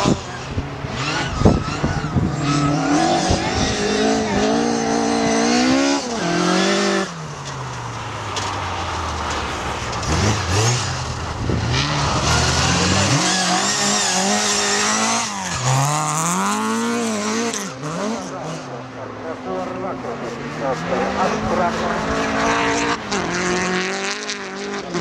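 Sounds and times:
rally car engine revving hard: 0:00.0 - 0:07.3, 0:09.2 - 0:25.0.

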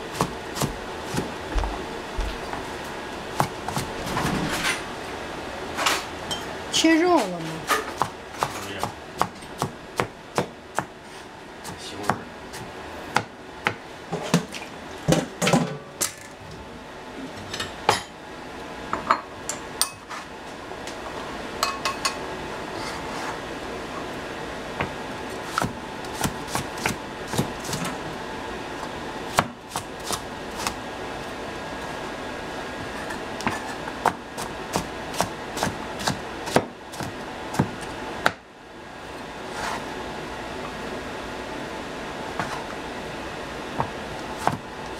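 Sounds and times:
steady background hum: 0:00.0 - 0:44.9
knife chopping on cutting board: 0:00.1 - 0:01.8, 0:07.8 - 0:10.9, 0:11.6 - 0:13.8, 0:24.8 - 0:27.8, 0:29.3 - 0:30.8, 0:33.4 - 0:38.4, 0:42.4 - 0:42.6, 0:43.8 - 0:44.6.

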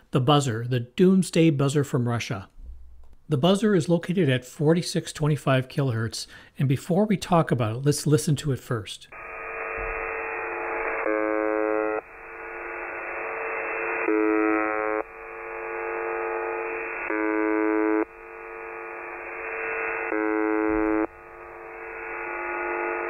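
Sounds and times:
radio hiss: 0:09.1 - 0:23.0
monotonous buzz tone: 0:09.2 - 0:23.0.

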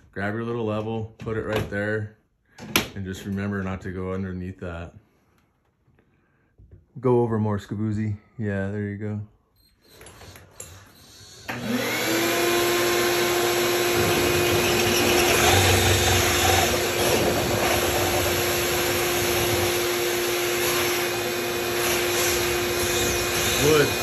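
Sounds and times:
cordless drill whining: 0:09.7 - 0:24.0
drill grinding through wall: 0:09.9 - 0:24.0.

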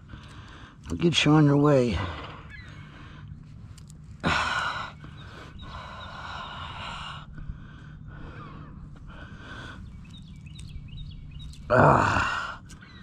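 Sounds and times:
heavy breathing: 0:02.0 - 0:10.6.

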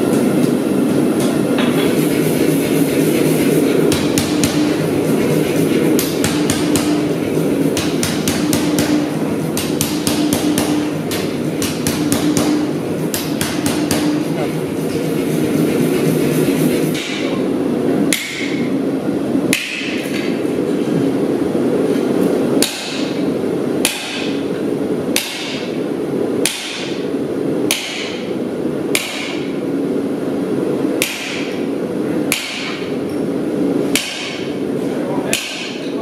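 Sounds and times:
sledgehammer striking steel on anvil: 0:07.7 - 0:14.4, 0:19.5 - 0:20.3, 0:32.3 - 0:32.9.

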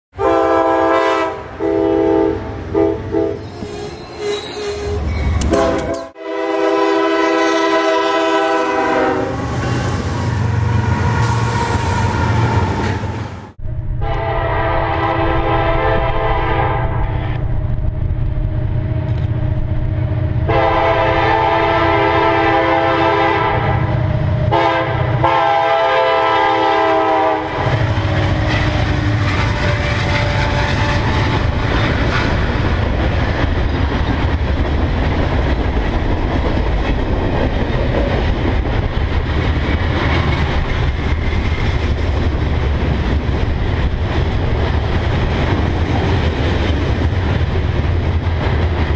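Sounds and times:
train air horn blasts: 0:00.2 - 0:13.0, 0:14.0 - 0:17.4, 0:20.5 - 0:23.9, 0:24.5 - 0:32.4
train wheels clattering on rails: 0:27.6 - 0:48.9.

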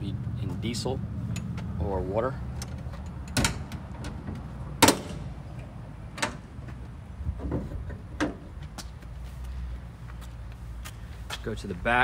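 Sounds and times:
car door clack: 0:03.3 - 0:05.3.

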